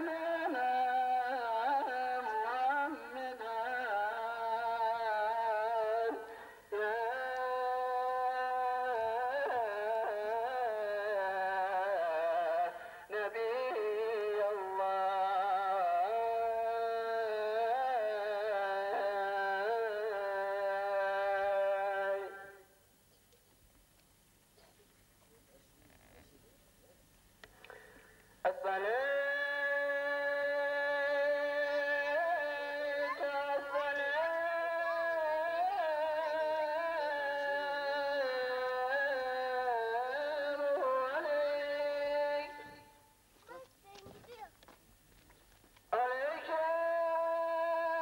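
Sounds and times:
person singing slow melody: 0.0 - 22.8, 27.5 - 43.1, 45.9 - 48.0.

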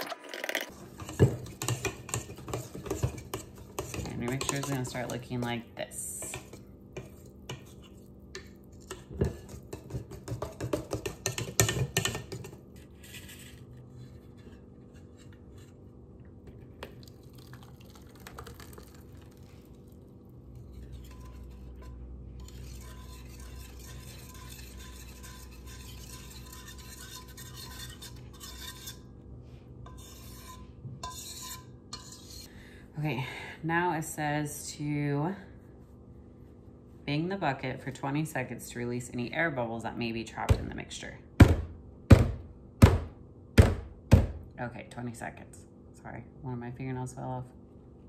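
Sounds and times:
mixture being poured: 0.0 - 0.7, 16.8 - 20.1
whisk scraping metal bowl: 0.0 - 15.8, 20.5 - 29.1, 29.8 - 32.5.

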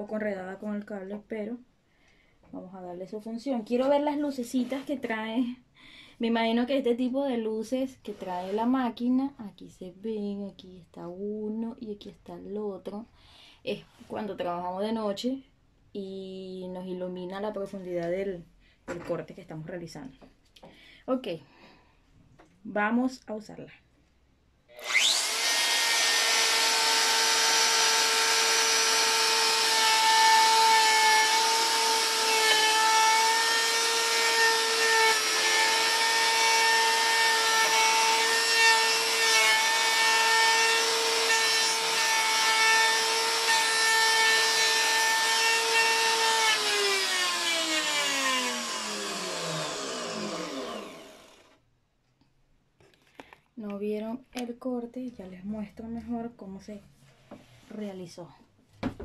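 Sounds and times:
router bit cutting wood: 24.8 - 51.6
router motor whining: 24.8 - 51.6.

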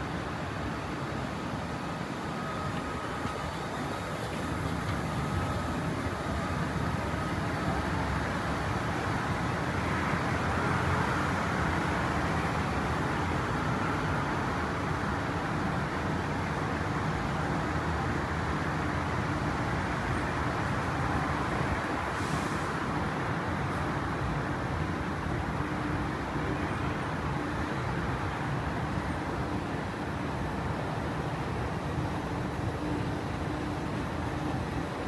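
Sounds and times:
faint whine: 0.0 - 11.8
train rumble and hiss: 0.0 - 35.0.

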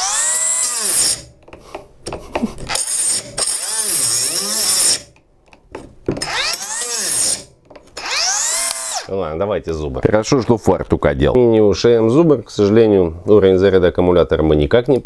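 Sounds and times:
angle grinder cutting wood: 0.0 - 1.4, 2.6 - 5.2, 6.2 - 9.1.

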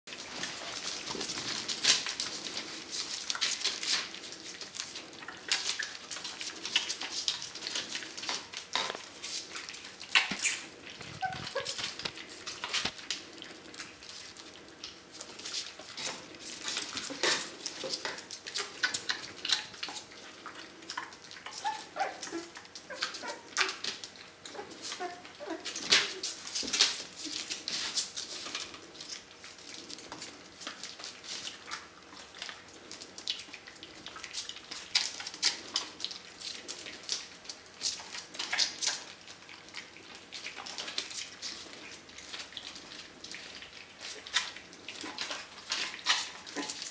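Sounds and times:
puppy whimpers: 10.2 - 12.1, 21.5 - 23.8, 24.5 - 26.2.

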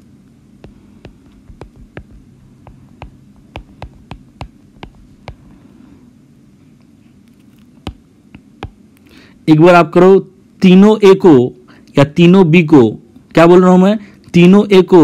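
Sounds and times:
low steady hum: 0.0 - 15.0
stylus tapping on drawing tablet: 0.6 - 5.5, 7.8 - 8.8.

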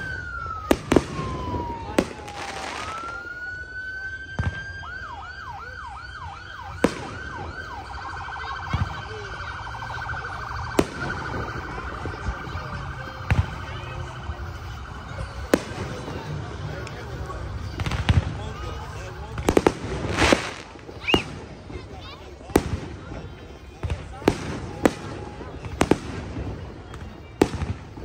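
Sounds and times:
firework bangs: 0.0 - 3.3, 6.7 - 7.7, 10.3 - 28.0
emergency vehicle siren: 0.0 - 28.0.

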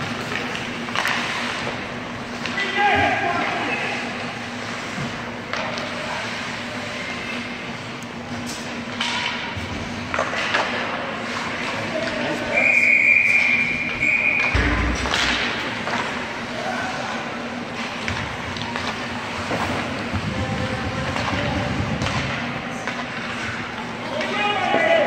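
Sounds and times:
sticks and puck clacking on ice: 0.0 - 4.0, 4.6 - 7.5, 8.4 - 12.4, 13.3 - 25.0
referee's whistle blast: 12.6 - 14.7.

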